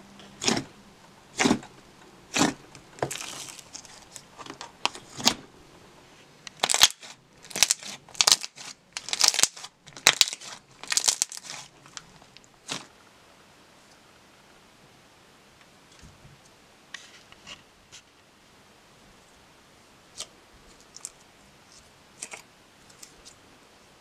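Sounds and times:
slime squishing by hand: 0.2 - 1.7, 2.3 - 5.5, 6.5 - 13.0.

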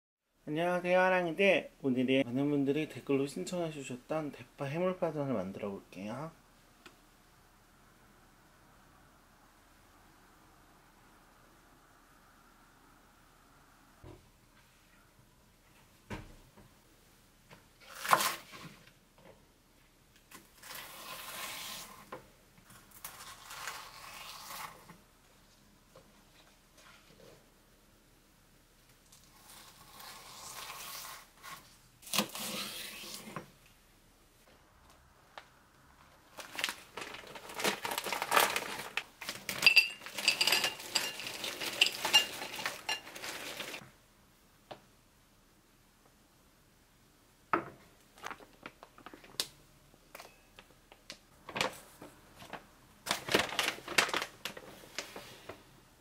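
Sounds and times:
plastic bag crinkling: 36.2 - 43.8, 51.4 - 55.2
frozen pieces clattering on plate: 36.4 - 43.8.

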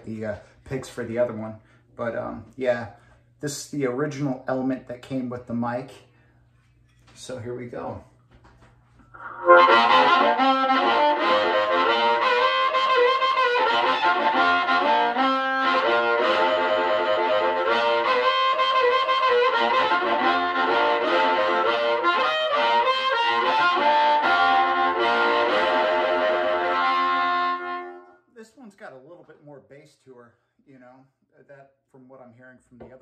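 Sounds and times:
overdriven blues harmonica: 9.1 - 28.2.

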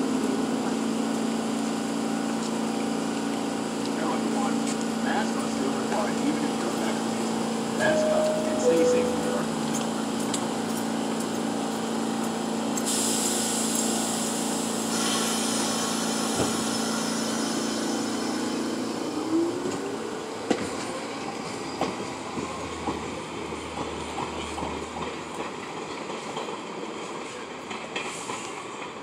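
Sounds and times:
subway train hum: 0.0 - 29.0
hiss: 12.8 - 18.7.

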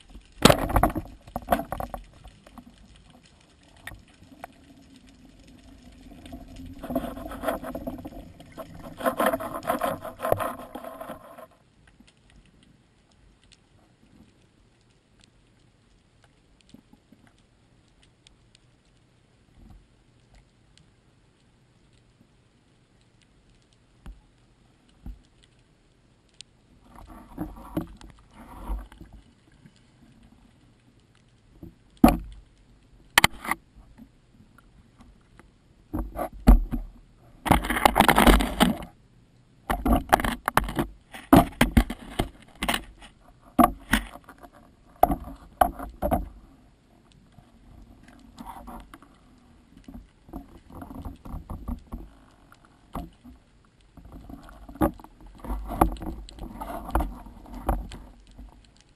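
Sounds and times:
rush of water: 0.0 - 11.6
underwater clicks and knocks: 0.0 - 12.7, 24.9 - 25.6, 26.3 - 30.4, 31.1 - 39.0, 39.6 - 58.9.

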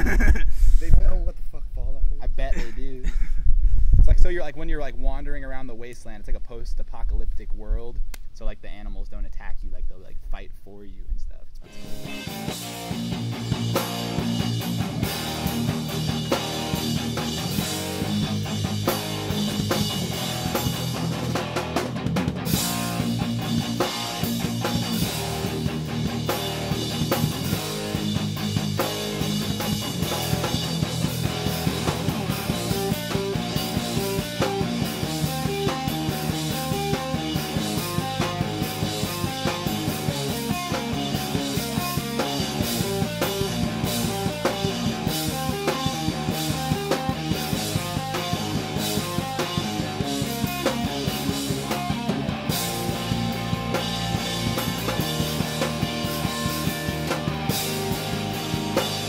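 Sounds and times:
rock band playing: 11.6 - 59.0
fast steady drumming: 12.1 - 59.0.

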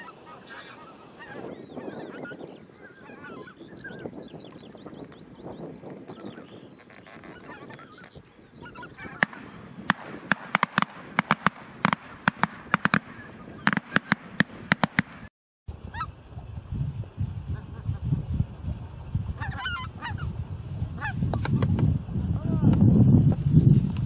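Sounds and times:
geese honking: 0.0 - 4.2, 7.2 - 15.3, 19.4 - 20.2
sharp loud cracks: 9.1 - 15.3.

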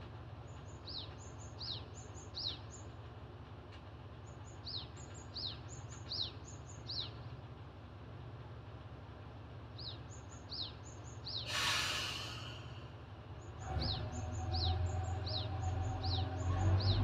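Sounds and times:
diesel engine droning: 9.5 - 17.0
air hiss: 11.4 - 12.8
bird chirping: 13.4 - 17.0.

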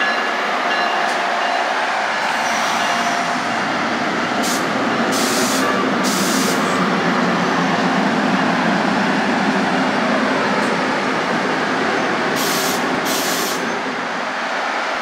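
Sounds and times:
train wheels rumbling on rail: 0.0 - 15.0
hiss bursts: 4.4 - 6.6, 12.4 - 13.7.

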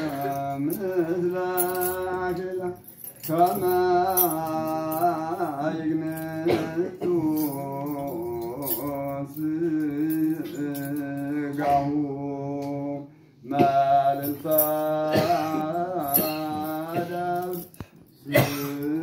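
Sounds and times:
men chanting a hymn in unison: 3.3 - 17.6.

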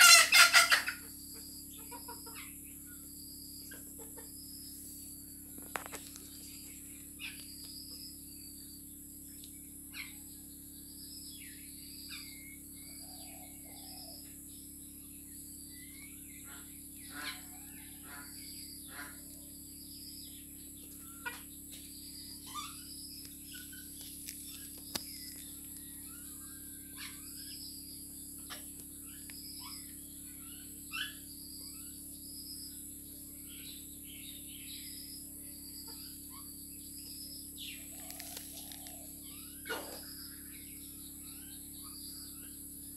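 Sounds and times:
chickens clucking and chirping: 0.0 - 42.9
steady high-pitched hum: 0.0 - 42.9
beaks pecking grain: 20.8 - 26.1, 37.1 - 40.6.

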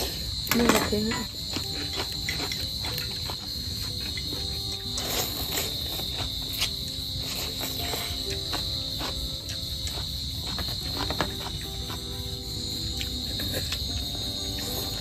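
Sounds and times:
crickets chirring: 0.0 - 15.0
small clicks of eating: 0.5 - 12.0.

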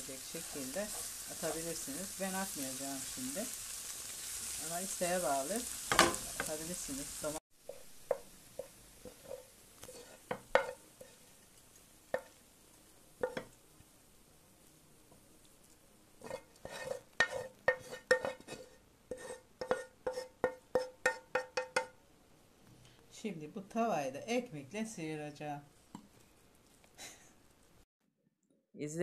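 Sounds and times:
wooden spoon knocking on frying pan: 5.9 - 6.6, 7.6 - 9.4, 10.3 - 10.8, 13.2 - 13.6, 19.6 - 22.0.

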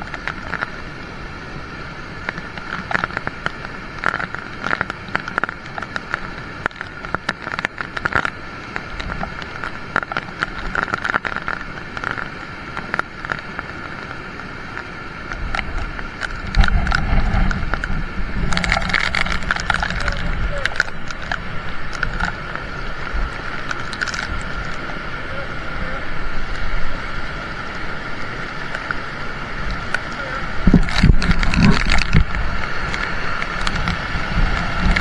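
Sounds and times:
rain pattering: 0.0 - 35.0
low rumble: 15.3 - 35.0.

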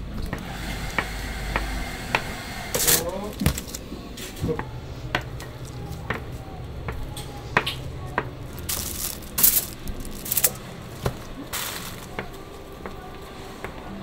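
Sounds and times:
plastic sheeting rustling: 8.6 - 12.4.

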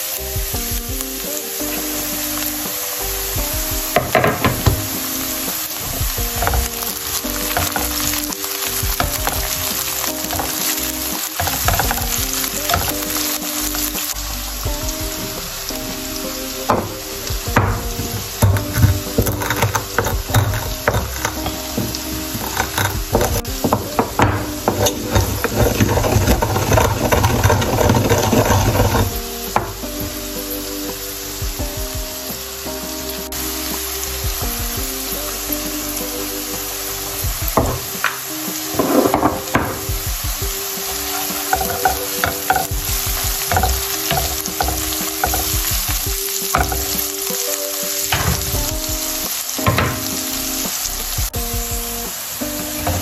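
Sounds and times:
background music: 0.0 - 53.0
vegetables sizzling in oil: 0.0 - 53.0
spatula scraping a pan: 4.0 - 14.1, 17.6 - 29.8, 40.8 - 47.3
wooden pestle grinding spices: 6.2 - 13.3, 17.5 - 29.7, 40.8 - 47.1.

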